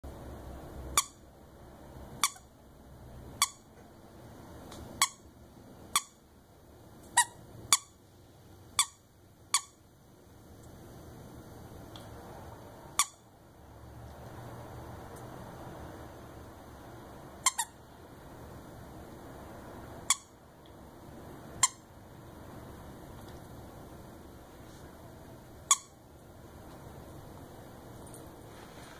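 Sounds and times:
toy squeaker squeaks: 1.0 - 1.2, 2.2 - 2.5, 3.4 - 3.7, 5.0 - 5.2, 6.0 - 6.2, 7.1 - 7.9, 8.8 - 9.8, 13.0 - 13.2, 17.4 - 17.8, 20.1 - 20.3, 21.6 - 21.8, 25.7 - 26.0.

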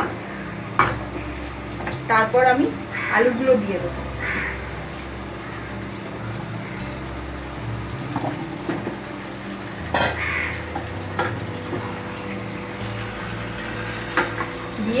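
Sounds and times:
light sizzle: 0.0 - 15.0
crow cawing: 2.9 - 3.3, 4.2 - 4.6, 10.0 - 10.8.

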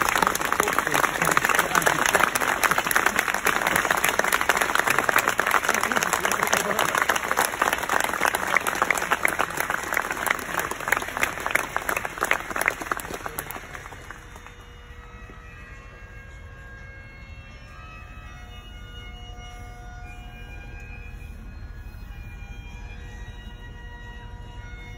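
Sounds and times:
crowd applauding: 0.0 - 15.4.

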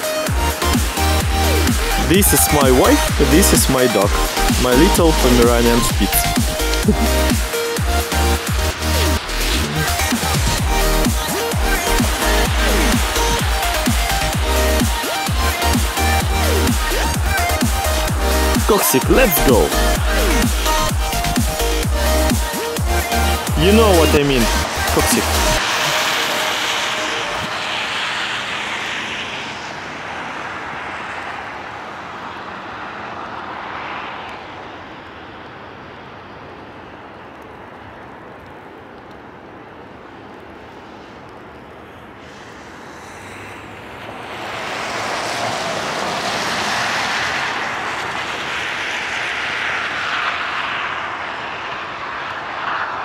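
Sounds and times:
tyres hissing on wet road: 0.0 - 53.0.

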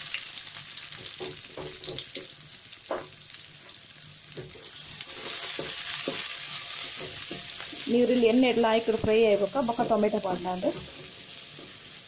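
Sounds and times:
onions sizzling in hot oil: 0.0 - 12.0
wooden spatula knocking on pan: 1.0 - 2.3, 5.5 - 6.3.

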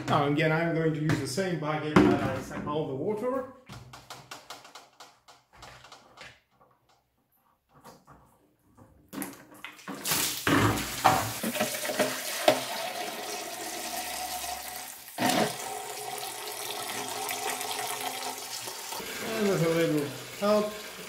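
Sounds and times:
water pouring into bucket: 9.6 - 21.0.

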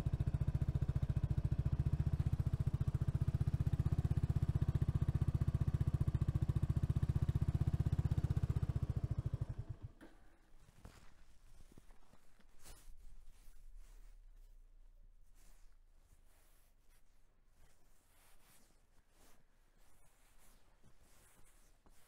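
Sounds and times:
motorcycle engine idling: 0.0 - 10.8.

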